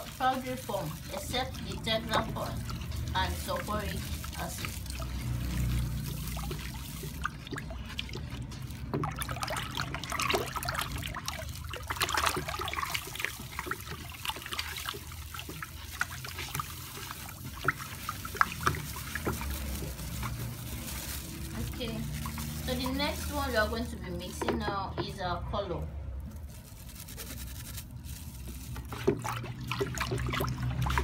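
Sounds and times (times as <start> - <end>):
water sloshing in a bucket: 0.0 - 31.0.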